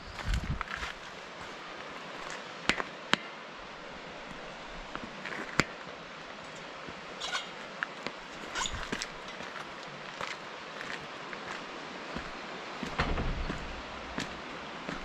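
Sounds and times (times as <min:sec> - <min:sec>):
steady rushing hiss: 0:00.0 - 0:15.0
footsteps on outdoor steps: 0:06.8 - 0:15.0.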